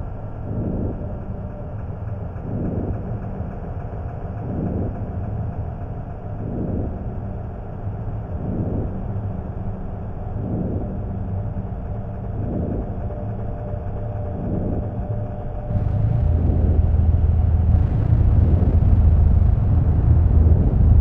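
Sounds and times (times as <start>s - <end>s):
dark ambient drone music: 0.0s - 21.0s.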